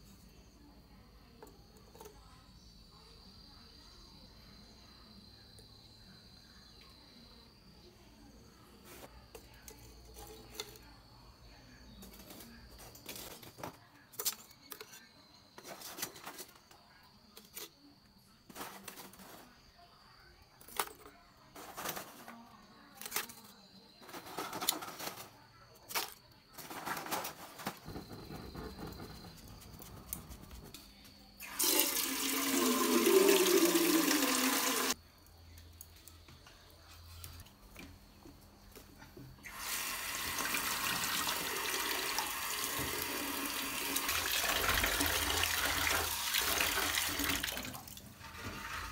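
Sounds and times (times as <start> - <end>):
charcoal knocking and clattering: 24.1 - 30.8.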